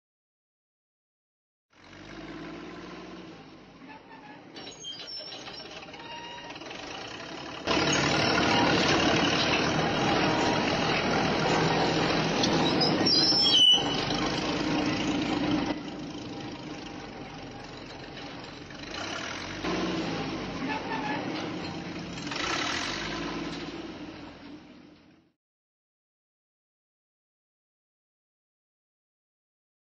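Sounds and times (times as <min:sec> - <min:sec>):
bulldozer diesel engine running: 0:01.8 - 0:25.0.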